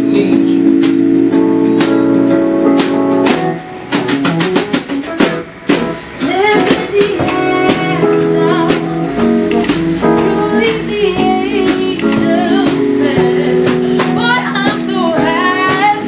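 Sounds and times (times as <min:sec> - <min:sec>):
acoustic guitar pop song: 0:00.0 - 0:16.0
drums: 0:00.0 - 0:16.0
person singing: 0:06.2 - 0:16.0.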